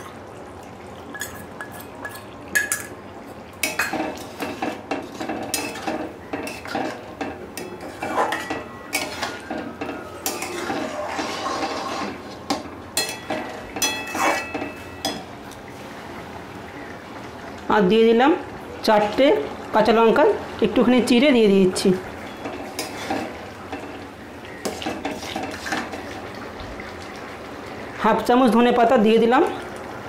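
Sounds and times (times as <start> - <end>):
spoon scraping metal wok: 3.6 - 15.2, 22.4 - 24.0, 24.6 - 26.1.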